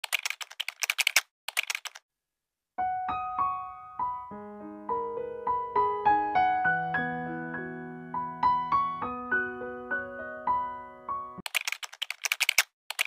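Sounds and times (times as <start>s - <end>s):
keyboard typing clicks: 0.0s - 2.0s, 11.4s - 13.0s
piano music: 2.8s - 11.4s.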